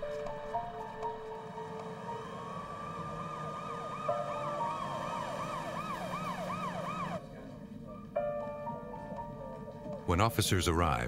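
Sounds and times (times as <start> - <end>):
police siren wailing and yelping: 1.3 - 7.2.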